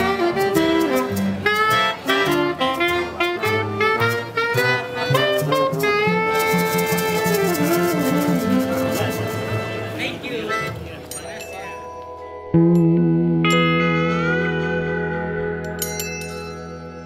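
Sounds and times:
trombone: 0.0s - 10.0s
soprano saxophone melody: 0.0s - 10.7s
accordion: 0.0s - 11.0s
upright double bass: 0.0s - 11.0s, 12.5s - 15.8s
maracas shaking: 0.0s - 11.5s.

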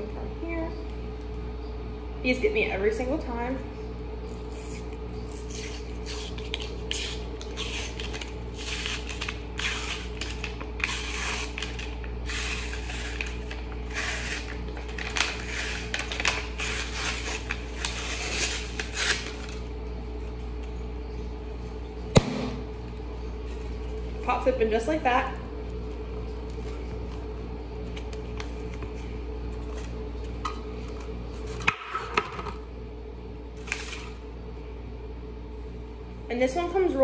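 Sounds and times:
paper label ripping: 4.3s - 19.7s
cardboard tube popping open: 22.1s - 22.7s.

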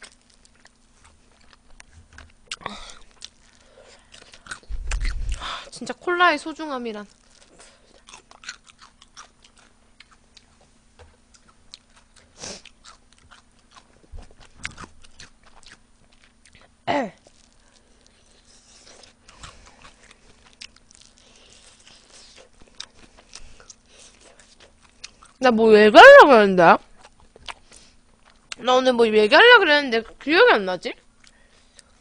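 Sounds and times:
biting and chewing fried chicken: 0.0s - 28.7s, 31.0s - 32.0s.

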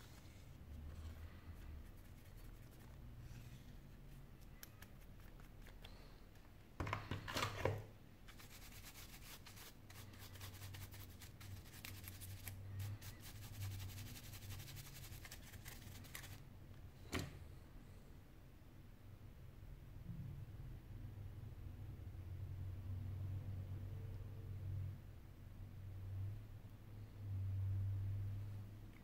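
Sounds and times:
bristle brush scratching on metal: 8.3s - 16.4s.

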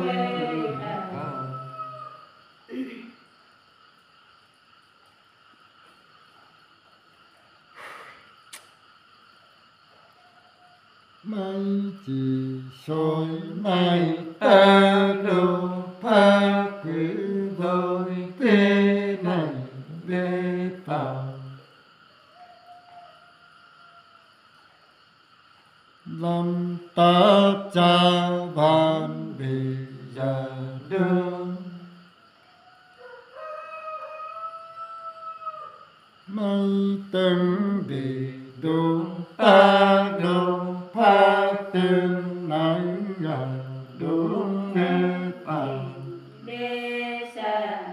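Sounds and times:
man singing unaccompanied: 0.0s - 1.7s, 11.2s - 21.6s, 26.0s - 32.0s, 36.3s - 46.4s
men chanting: 0.0s - 2.0s, 11.3s - 21.6s, 26.1s - 31.9s, 36.3s - 46.4s.

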